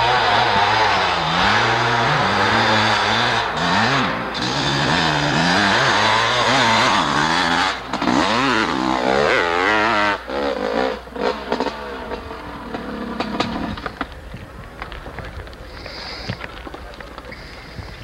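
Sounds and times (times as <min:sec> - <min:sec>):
dirt bike engine revving: 0:00.0 - 0:14.1
scattered clatter: 0:10.3 - 0:18.0.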